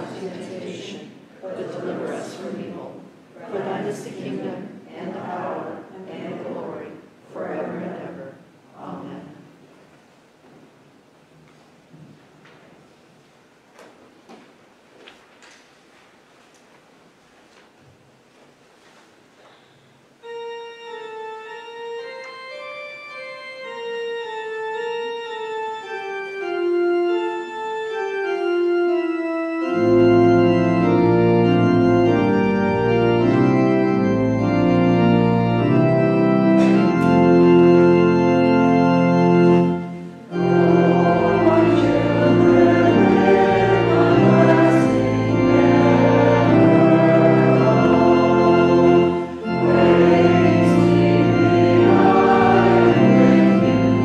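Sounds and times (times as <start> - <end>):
organ playing chords: 20.1 - 54.0.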